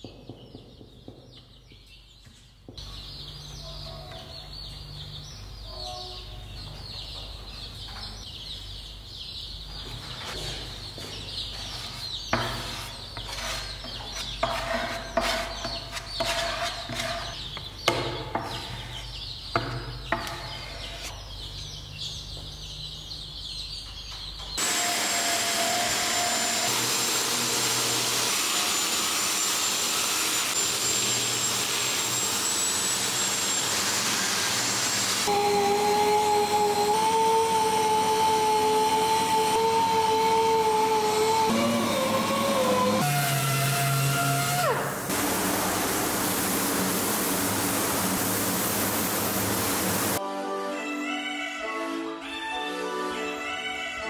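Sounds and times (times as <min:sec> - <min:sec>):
hand sanding wood: 0:11.7 - 0:17.4, 0:24.6 - 0:50.2
grinder with sanding disc whining: 0:24.6 - 0:50.2.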